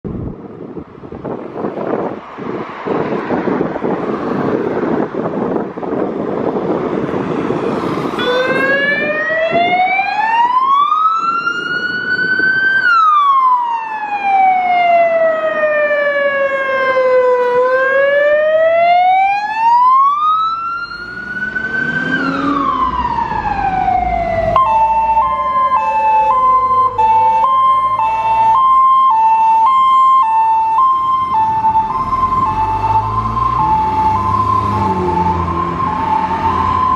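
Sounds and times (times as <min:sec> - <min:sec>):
wailing siren: 0:07.8 - 0:36.9
two-tone siren: 0:08.2 - 0:36.9
diesel truck engine rumbling: 0:14.6 - 0:36.9.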